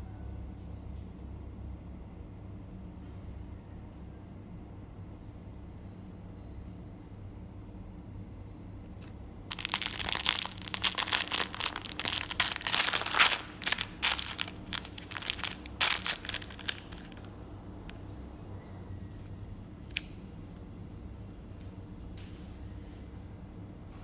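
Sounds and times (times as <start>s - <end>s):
plastic packet crinkling: 9.0s - 17.3s.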